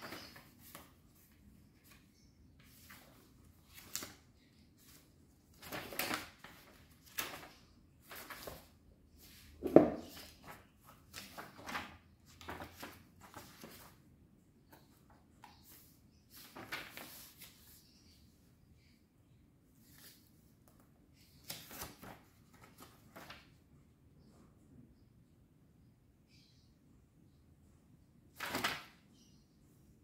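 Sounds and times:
paper pages rustling: 0.0s - 14.0s, 14.7s - 17.9s, 19.8s - 23.6s, 28.4s - 29.0s.

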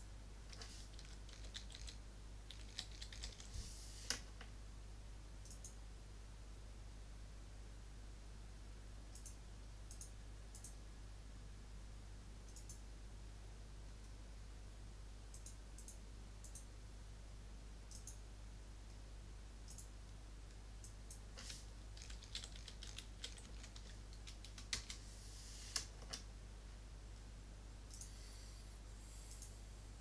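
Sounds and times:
low steady hum: 0.0s - 30.0s
computer keyboard typing: 0.5s - 3.5s, 17.9s - 18.2s, 19.7s - 19.9s, 20.8s - 25.0s
mouse clicks: 5.4s - 5.8s, 9.1s - 10.8s, 12.5s - 12.8s, 15.3s - 16.7s, 17.9s - 18.2s, 19.7s - 19.9s.

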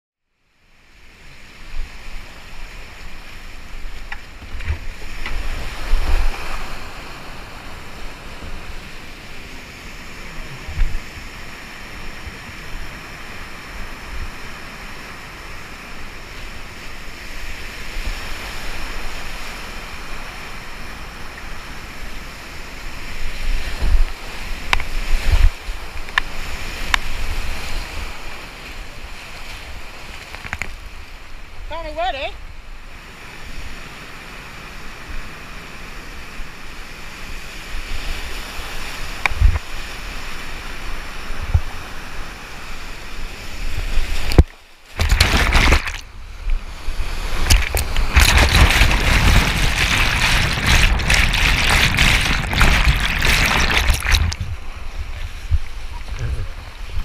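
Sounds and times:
thumps on microphone: 44.3s - 46.0s
whitewater rapids rushing: 47.3s - 56.2s.

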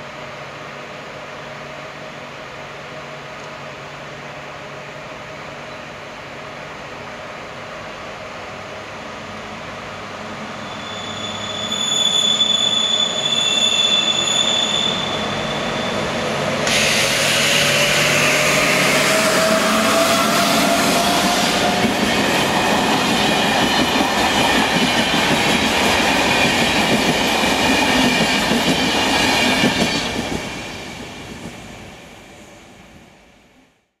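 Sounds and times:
locomotive whine: 10.4s - 31.2s
high steady squeal: 10.6s - 24.6s
train wheels rumbling and clattering: 15.1s - 31.9s.

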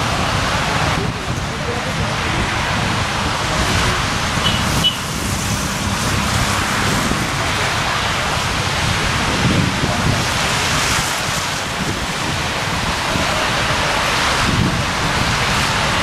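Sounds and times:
passing road traffic: 0.0s - 16.0s
wind buffeting microphone: 0.0s - 16.0s
train rumbling: 3.4s - 10.4s.

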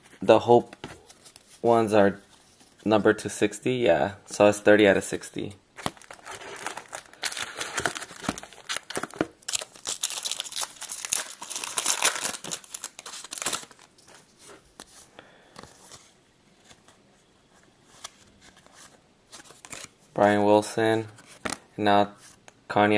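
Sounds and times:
cards rustling: 0.6s - 2.9s, 5.8s - 17.0s, 17.8s - 20.0s
foil wrapper crinkling: 5.8s - 14.0s.

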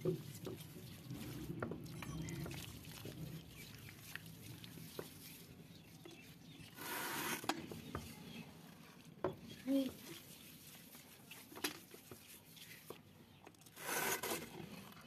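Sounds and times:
mud squelching: 0.0s - 15.0s
rushing scrape: 13.8s - 14.6s.

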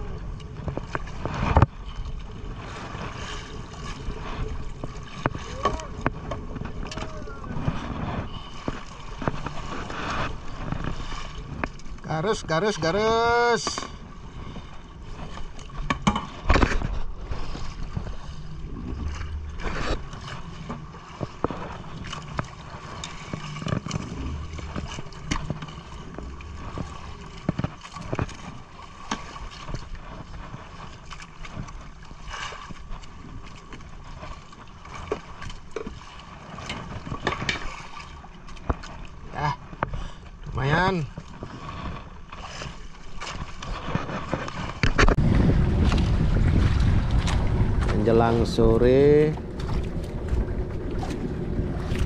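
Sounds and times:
boat hum: 0.0s - 52.0s
water noise: 0.0s - 52.0s
fish and net knocking on hull: 15.8s - 17.0s.

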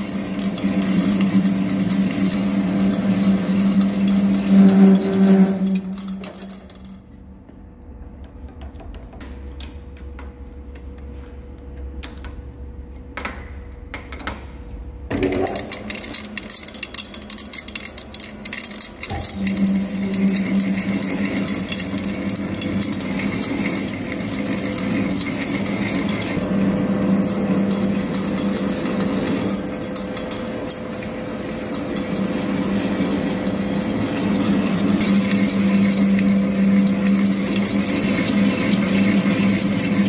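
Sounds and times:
lathe cutting metal: 0.0s - 6.5s, 19.0s - 40.0s
lathe spindle running: 0.0s - 6.6s, 17.7s - 40.0s
metal chips tinkling: 0.0s - 7.0s, 15.4s - 40.0s.

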